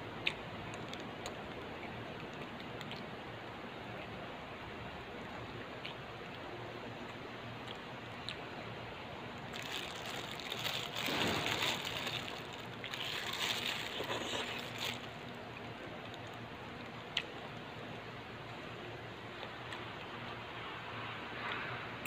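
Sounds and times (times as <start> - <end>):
steady background hiss: 0.0 - 22.0
plastic bag crinkling: 9.4 - 15.3.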